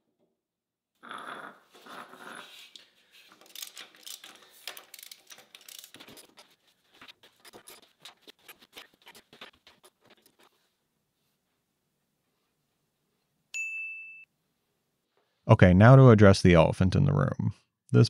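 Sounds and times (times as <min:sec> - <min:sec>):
metallic clicking of bolts turned: 0:03.4 - 0:06.4.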